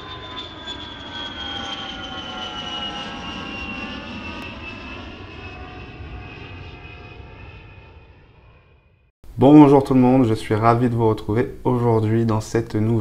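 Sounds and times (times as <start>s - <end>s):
jet airliner passing overhead: 0.0s - 9.1s.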